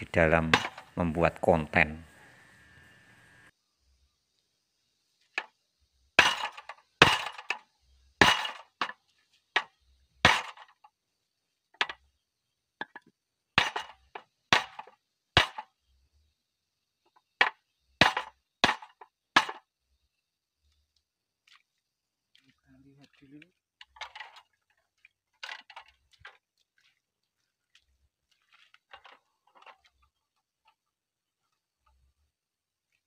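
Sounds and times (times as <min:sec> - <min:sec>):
hammer striking steel: 0:00.5 - 0:01.0.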